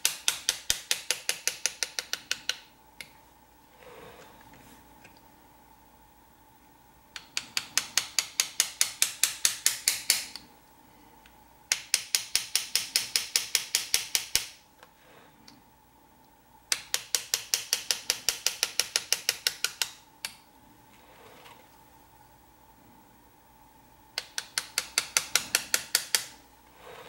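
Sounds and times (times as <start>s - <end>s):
small hammer tapping chisel on metal: 0.0s - 2.7s, 7.2s - 10.5s, 11.7s - 14.5s, 16.7s - 20.4s, 24.2s - 26.4s.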